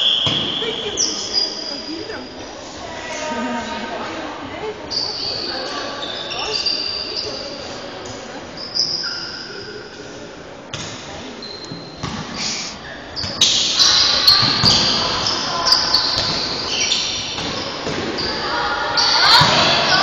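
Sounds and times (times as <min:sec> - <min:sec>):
basketball bouncing on court: 0:14.3 - 0:16.7.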